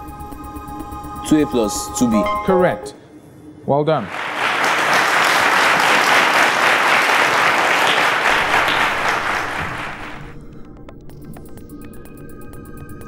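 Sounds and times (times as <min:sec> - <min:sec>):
audience applauding: 0:04.1 - 0:10.4.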